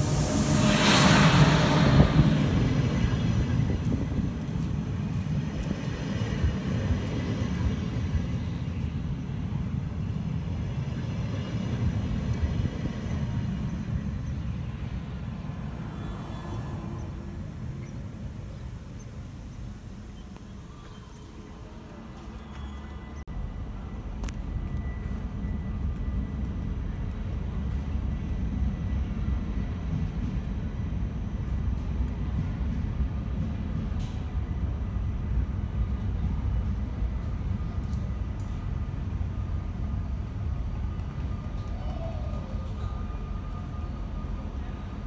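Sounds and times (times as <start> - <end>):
electric locomotive passing: 0.0 - 45.0
train coaches rumbling past: 0.0 - 45.0.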